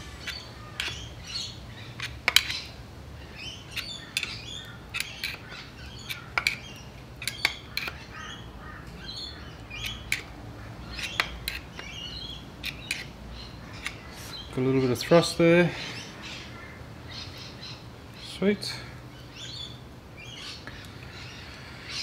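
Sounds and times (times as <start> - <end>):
birds chirping: 0.0 - 22.0
sharp metal clicks: 6.0 - 8.0.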